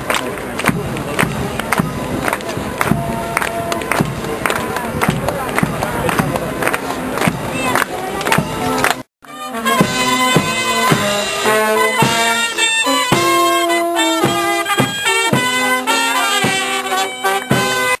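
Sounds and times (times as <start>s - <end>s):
brass band playing a march: 8.4s - 18.0s.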